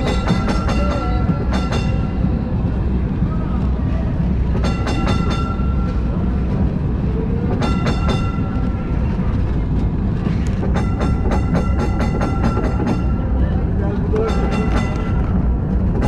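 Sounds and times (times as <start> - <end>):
tram warning bell ringing: 0.0 - 2.8, 4.5 - 6.6, 7.3 - 9.3, 10.5 - 16.0
tram rumbling on rails: 0.0 - 16.0.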